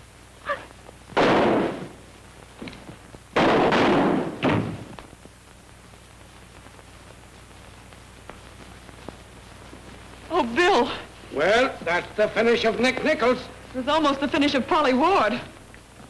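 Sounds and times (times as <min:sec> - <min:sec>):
loud sudden bangs: 0:01.2 - 0:02.0, 0:03.4 - 0:04.9.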